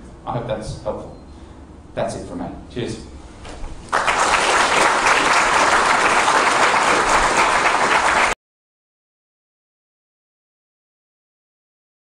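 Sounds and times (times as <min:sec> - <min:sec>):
audience applauding: 0:03.9 - 0:08.4.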